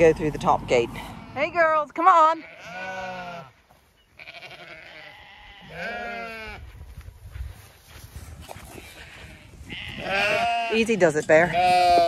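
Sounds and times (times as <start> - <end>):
sheep bleating: 1.0 - 3.6, 4.2 - 6.6, 9.0 - 12.0.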